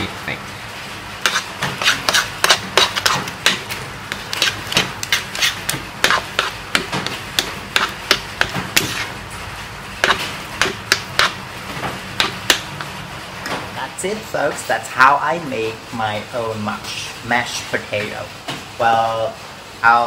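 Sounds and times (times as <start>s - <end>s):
fork scraping a frying pan: 1.2s - 9.2s, 10.0s - 11.4s.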